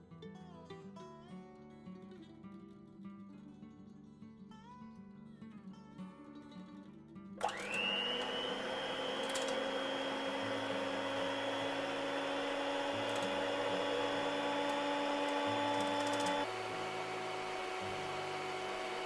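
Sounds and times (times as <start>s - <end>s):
electric hand blender whining: 7.4s - 19.0s.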